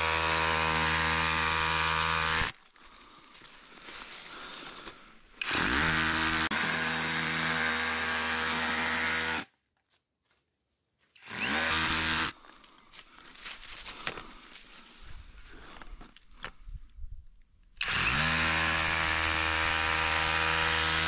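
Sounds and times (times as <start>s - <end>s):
electric power tool whine: 0.0s - 2.6s, 5.4s - 9.5s, 11.2s - 12.4s, 17.8s - 21.0s.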